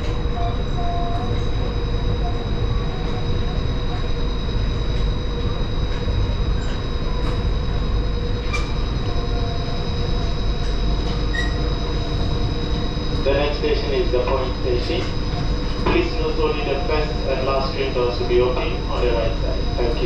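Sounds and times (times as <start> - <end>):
high whine: 0.0 - 20.0
monorail low rumble: 0.0 - 20.0.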